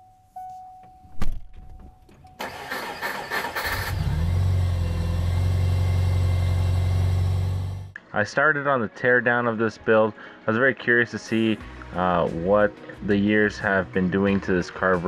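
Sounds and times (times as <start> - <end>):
engine starter cranking: 2.3 - 5.7
car engine idling: 2.4 - 8.0.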